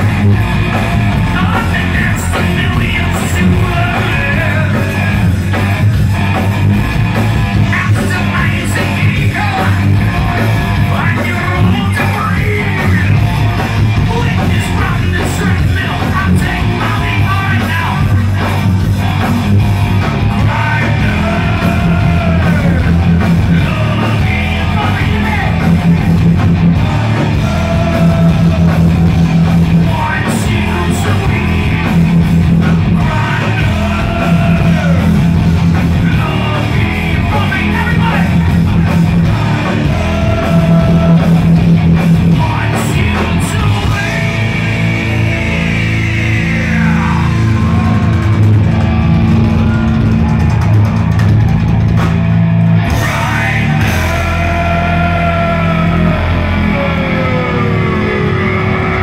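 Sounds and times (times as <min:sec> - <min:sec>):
bass: 0:00.0 - 0:59.0
distorted electric guitars: 0:00.0 - 0:59.0
drums: 0:00.0 - 0:59.0
singer yelling high vocals: 0:20.4 - 0:26.0, 0:32.9 - 0:35.4, 0:52.9 - 0:59.0.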